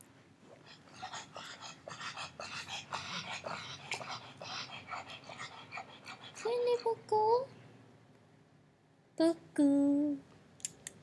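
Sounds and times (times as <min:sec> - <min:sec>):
dog snorting and breathing hard: 0:00.6 - 0:07.0.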